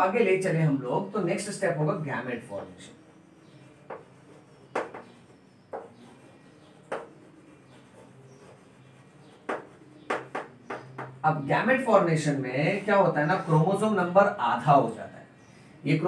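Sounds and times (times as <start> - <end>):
chalk tapping and scraping on chalkboard: 3.0 - 11.2.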